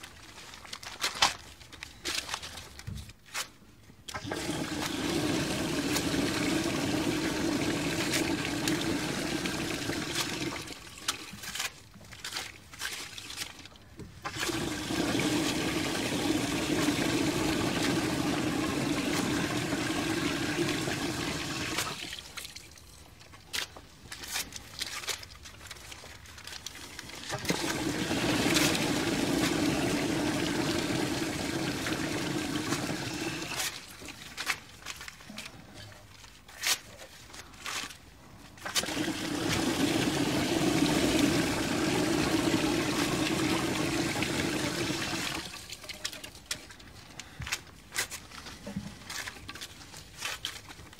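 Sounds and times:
toilet flushing: 4.1s - 10.8s, 14.3s - 22.2s, 27.3s - 33.6s, 38.7s - 46.0s.

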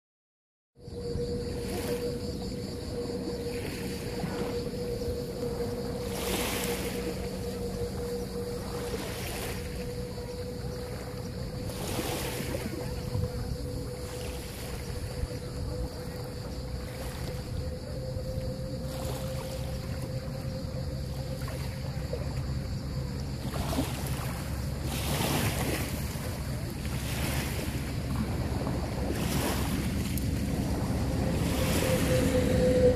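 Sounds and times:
steady hum: 0.8s - 24.8s
low wind rumble on microphone: 0.8s - 32.9s
waves washing over pebbles: 22.4s - 32.9s.

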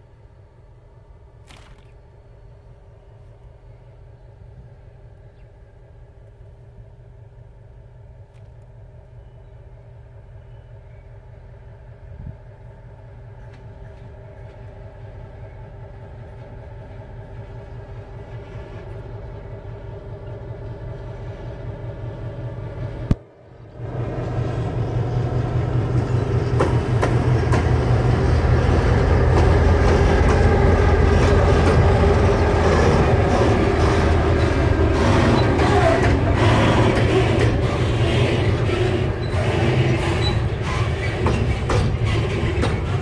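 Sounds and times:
diesel locomotive engine humming: 0.0s - 43.0s
train wheels rumbling: 0.0s - 43.0s
wheels clicking on rails: 25.9s - 43.0s.

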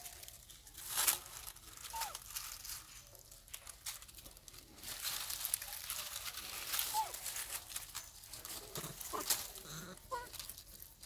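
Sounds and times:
dry leaves crackling and rustling: 0.0s - 11.0s
faint squeak: 1.8s - 2.3s, 5.6s - 7.5s.

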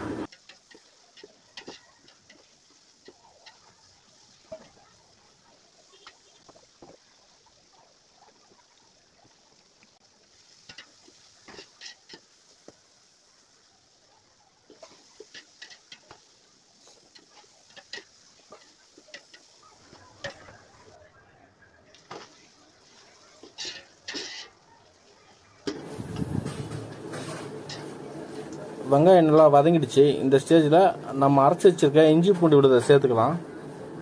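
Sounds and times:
oil frying hiss: 0.0s - 34.0s
metal spoon scraping a pot: 23.4s - 24.6s.

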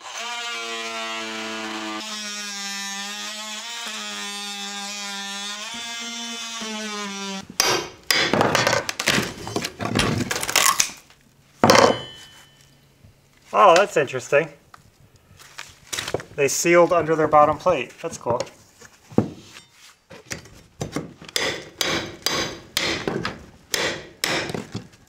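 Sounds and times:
oscillating multi-tool cutting wood: 0.0s - 7.4s.

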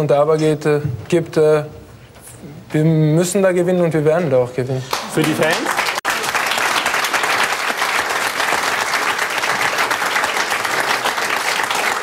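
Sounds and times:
audience applause: 4.9s - 12.0s.

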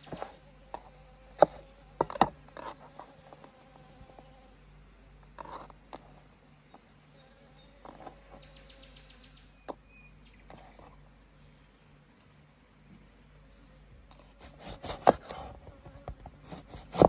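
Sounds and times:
knife on wooden cutting board: 14.2s - 17.0s.

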